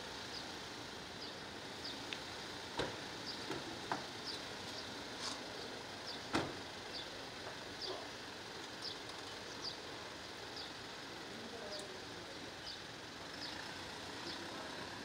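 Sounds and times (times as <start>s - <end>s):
background hiss: 0.0s - 15.0s
car door thud: 6.3s - 6.6s.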